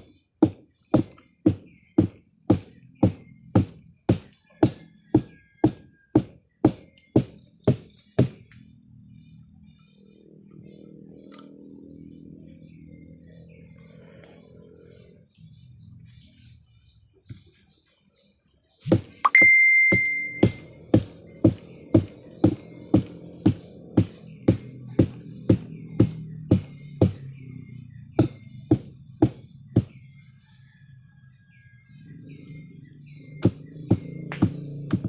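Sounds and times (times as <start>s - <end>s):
insects buzzing high-pitched: 0.0s - 35.0s
stick knocking on stalk: 0.4s - 8.4s, 18.8s - 27.3s, 28.2s - 30.0s, 33.4s - 35.0s.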